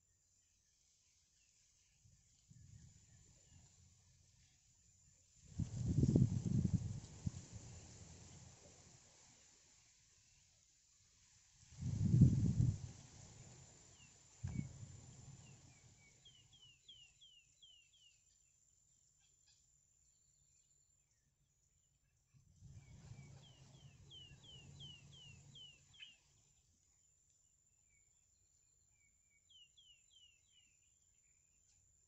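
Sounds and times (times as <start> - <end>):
high falling bird chirps: 22.8 - 26.4.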